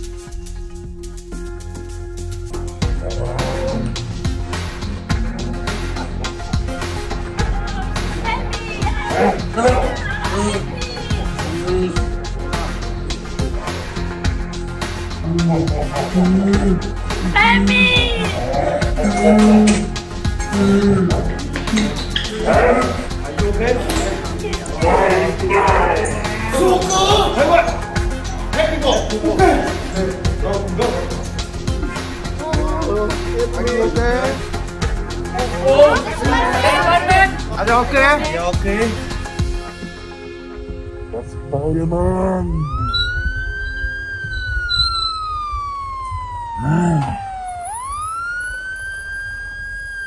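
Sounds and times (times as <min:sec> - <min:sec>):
loud background music with bass: 0:00.0 - 0:45.3
emergency siren wailing: 0:42.4 - 0:50.0.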